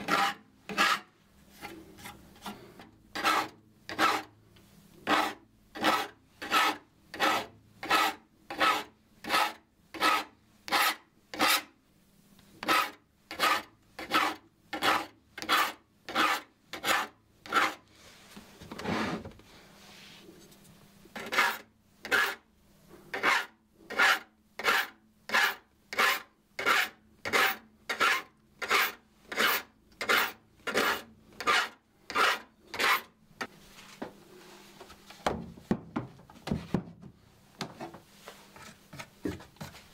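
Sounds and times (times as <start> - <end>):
file rasping on saw teeth: 0.0 - 1.1, 3.1 - 4.3, 5.0 - 11.7, 12.6 - 17.8, 21.2 - 22.4, 23.1 - 33.1
soft rustle: 17.9 - 20.9, 33.5 - 35.2, 37.8 - 39.9.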